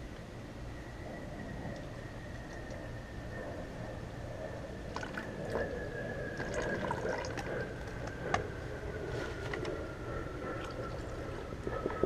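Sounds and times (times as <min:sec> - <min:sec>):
water dripping: 0:01.7 - 0:02.8, 0:06.4 - 0:08.2.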